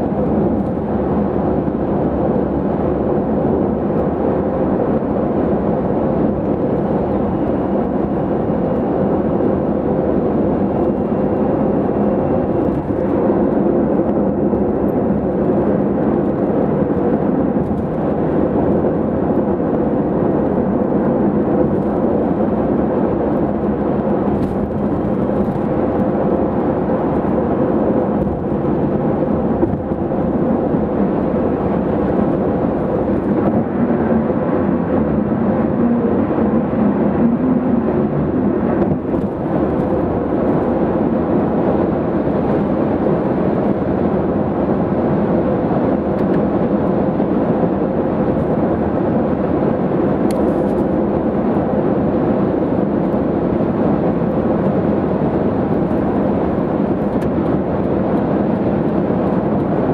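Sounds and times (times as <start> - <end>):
car road noise at speed: 0.0 - 59.9.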